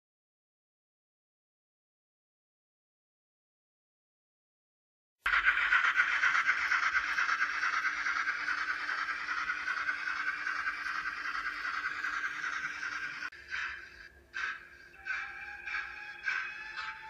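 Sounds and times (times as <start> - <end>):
model train steam hiss: 5.3 - 17.0.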